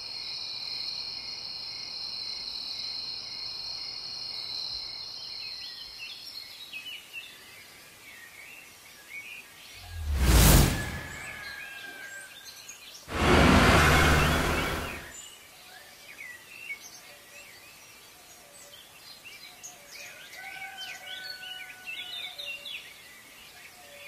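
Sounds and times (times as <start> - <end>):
loud rushing noise bursts: 9.8 - 11.6, 13.1 - 15.1.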